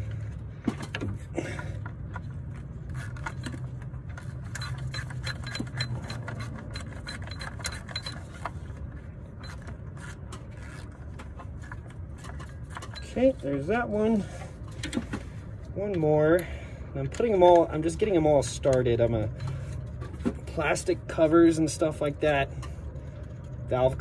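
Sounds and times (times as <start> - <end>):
bolt clicks and scrapes: 1.8 - 13.1.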